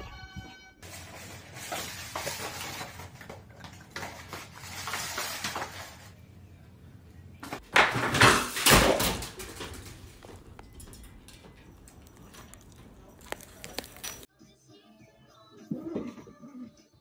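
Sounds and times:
cardboard box scraping on tile: 0:00.8 - 0:03.2, 0:04.0 - 0:06.2.

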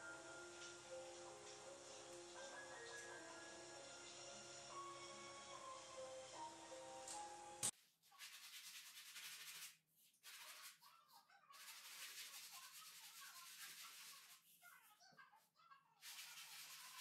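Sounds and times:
sandpaper rubbing on wall: 0:08.1 - 0:10.9, 0:11.5 - 0:14.7, 0:16.0 - 0:17.0.

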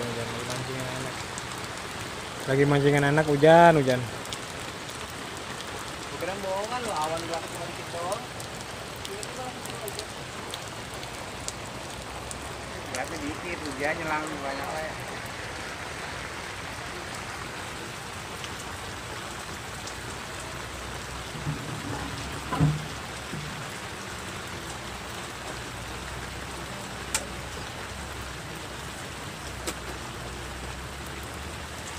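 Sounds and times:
rain falling on water: 0:00.0 - 0:31.9
dull thump: 0:21.3 - 0:23.7.

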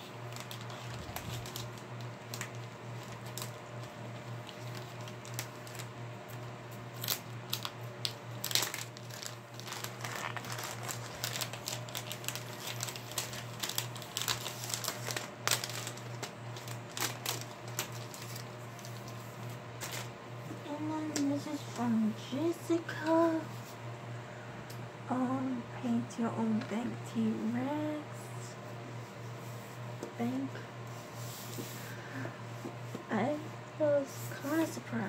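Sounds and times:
packaging crinkling and rustling: 0:00.0 - 0:20.2
steady low hum: 0:00.0 - 0:35.0.

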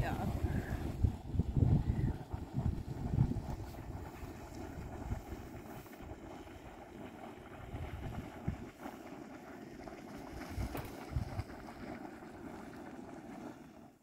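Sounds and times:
wind buffeting microphone: 0:00.0 - 0:08.9, 0:09.8 - 0:11.9.

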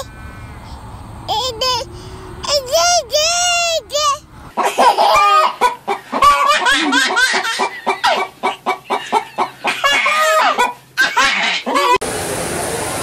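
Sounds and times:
chicken clucking: 0:04.6 - 0:12.0.

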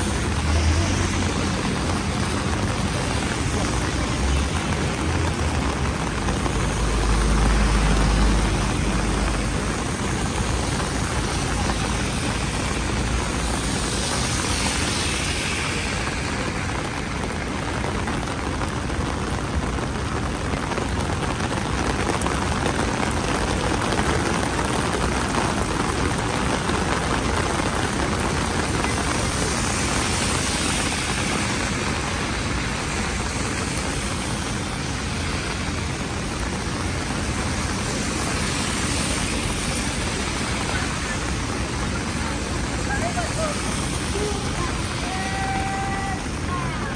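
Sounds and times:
rain falling on street: 0:00.0 - 0:46.9
traffic noise: 0:00.0 - 0:46.9.

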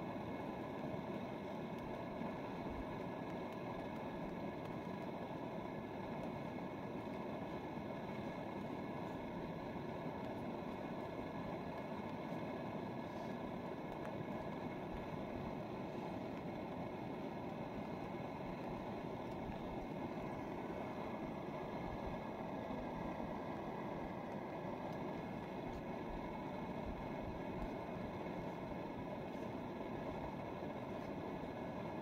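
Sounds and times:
gas stove burner running: 0:00.0 - 0:32.0.

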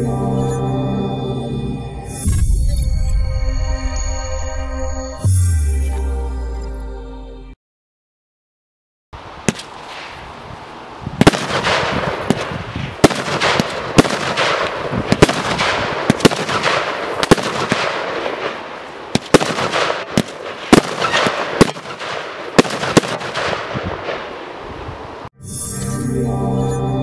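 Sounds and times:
firework bangs: 0:09.4 - 0:10.2, 0:11.2 - 0:24.5
firework crackling hiss: 0:09.4 - 0:23.4.

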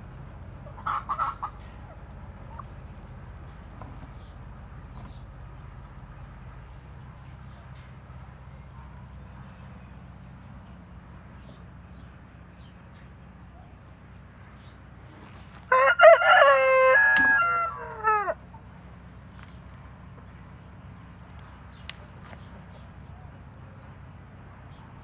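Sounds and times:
rooster crowing: 0:15.7 - 0:18.5.

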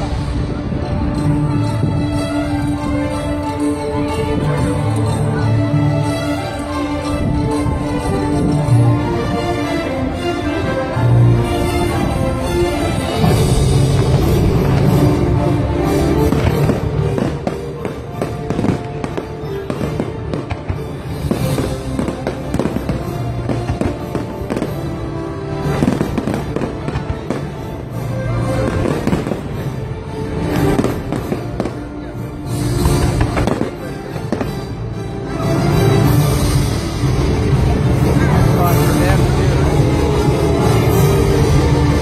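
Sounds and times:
loud music: 0:00.0 - 0:42.0
fireworks bursting and crackling: 0:12.0 - 0:34.9.

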